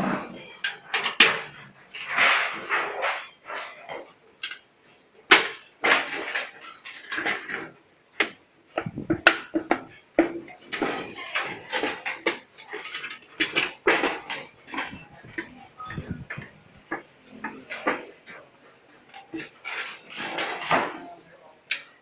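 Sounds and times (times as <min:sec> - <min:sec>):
sheet metal clanking and rattling: 0:08.8 - 0:21.2.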